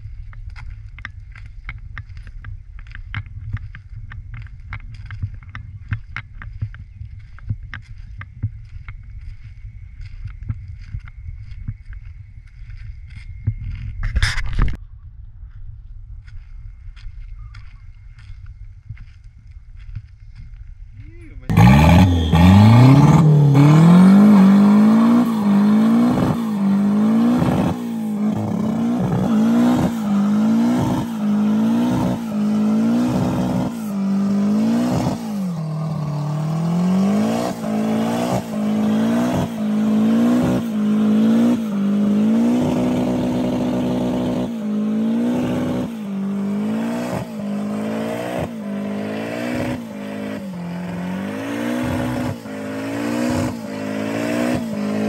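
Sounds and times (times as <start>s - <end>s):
car engine revving hard: 21.5s - 55.0s.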